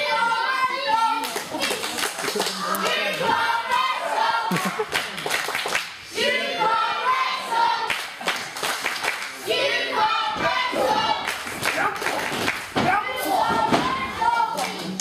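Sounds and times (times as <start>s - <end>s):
crowd clapping: 1.2s - 3.8s, 4.5s - 6.0s, 7.9s - 9.4s, 11.2s - 12.9s, 14.2s - 15.0s
crowd chanting in unison: 2.6s - 4.8s, 6.0s - 8.2s, 9.3s - 11.9s, 12.8s - 14.7s.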